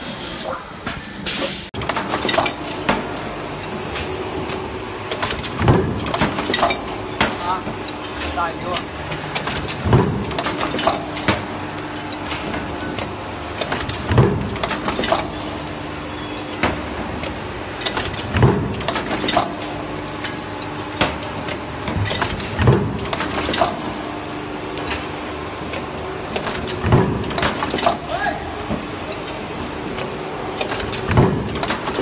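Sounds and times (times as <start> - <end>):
steady machine hum: 1.8 - 32.0.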